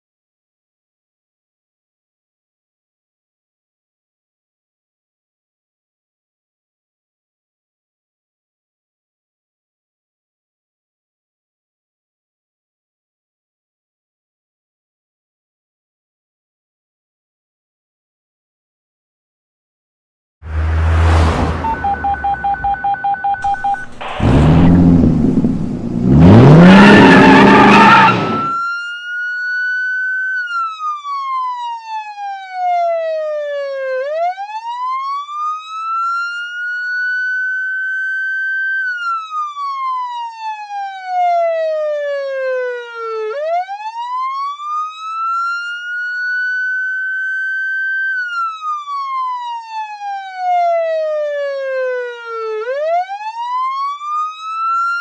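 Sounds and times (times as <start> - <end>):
police siren wailing: 20.5 - 55.0
rapid electronic beeping: 21.6 - 24.7
loud noise bursts: 23.4 - 28.6.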